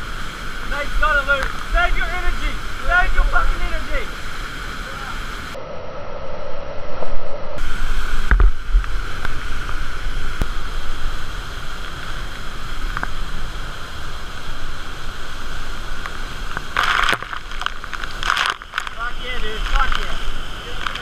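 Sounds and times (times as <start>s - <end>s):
waterfall roaring: 0.0s - 5.6s, 7.6s - 21.0s
burst of noise: 14.2s - 21.0s.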